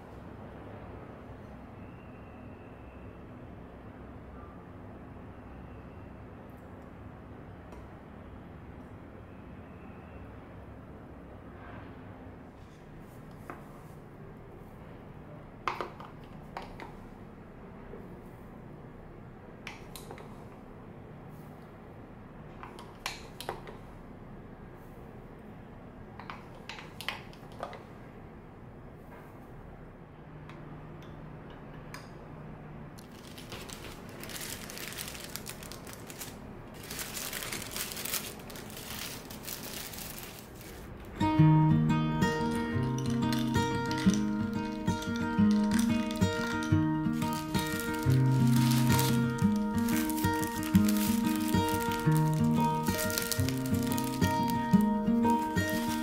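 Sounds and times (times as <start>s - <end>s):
paper wrappers crinkling: 33.0s - 41.0s, 42.4s - 56.0s.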